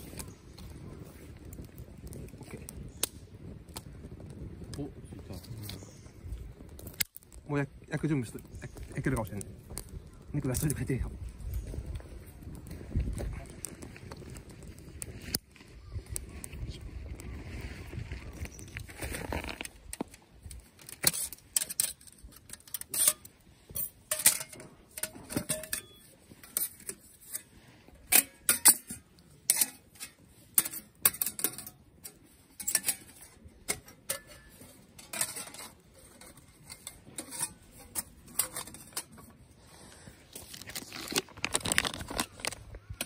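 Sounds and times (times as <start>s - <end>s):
metal cookware clinking and knocking: 21.0s - 26.9s, 28.1s - 31.8s, 32.6s - 39.1s.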